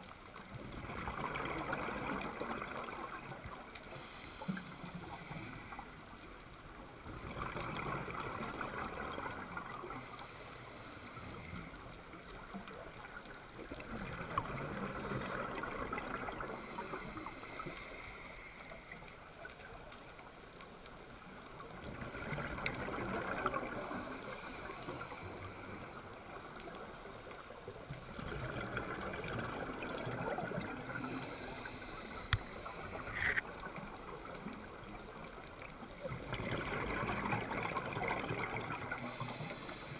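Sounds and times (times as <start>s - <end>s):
bubbles gurgling underwater: 0.5s - 3.7s, 7.0s - 10.0s, 21.6s - 24.1s, 27.9s - 31.3s, 33.6s - 39.3s
watery hiss: 1.6s - 6.8s, 9.4s - 12.2s, 14.4s - 19.7s, 22.9s - 27.1s, 29.8s - 33.6s, 37.1s - 39.9s.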